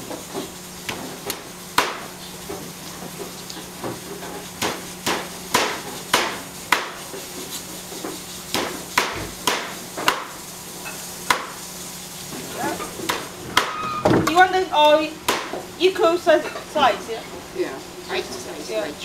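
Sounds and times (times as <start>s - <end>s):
cleaver chopping on wooden block: 1.8s - 2.1s, 4.6s - 7.0s, 8.5s - 10.3s, 11.3s - 11.6s, 13.1s - 13.8s, 15.3s - 15.6s.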